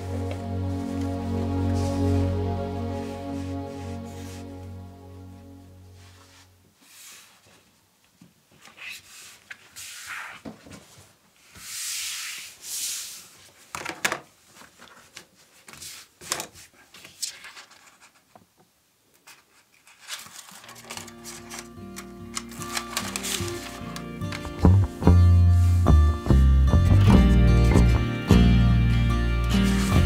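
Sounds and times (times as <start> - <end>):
hands rubbing and scraping material: 0.2 - 4.8, 5.9 - 7.7, 8.6 - 13.6, 29.4 - 30.0.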